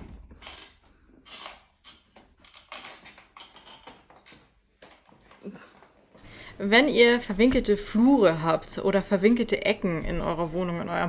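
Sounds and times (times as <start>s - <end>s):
wheelchair clicking and tapping: 0.0s - 6.2s.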